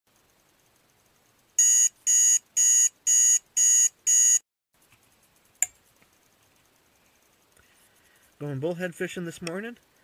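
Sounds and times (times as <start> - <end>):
alarm clock beeping: 1.6 - 4.4.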